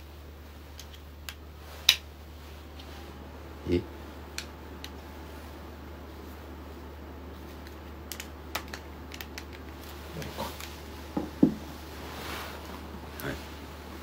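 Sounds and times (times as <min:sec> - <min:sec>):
steady low hum: 0:00.0 - 0:14.0
soft knocks: 0:11.1 - 0:11.7.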